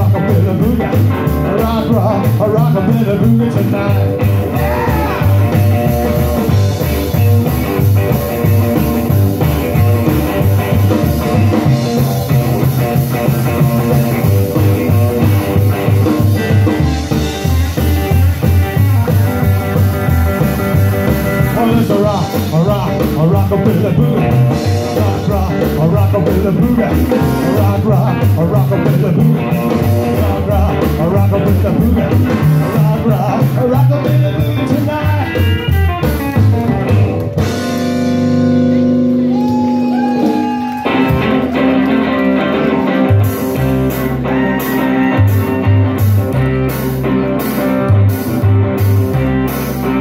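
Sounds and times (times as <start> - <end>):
drums: 0.0 - 50.0
upright bass: 0.0 - 50.0
electric guitar solo: 4.0 - 21.6, 35.3 - 50.0.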